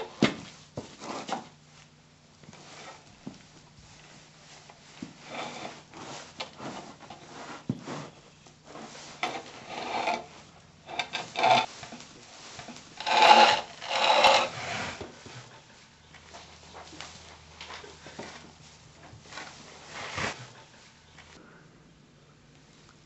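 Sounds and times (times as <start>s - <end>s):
wooden chair scraping: 5.0s - 15.6s, 19.2s - 20.6s.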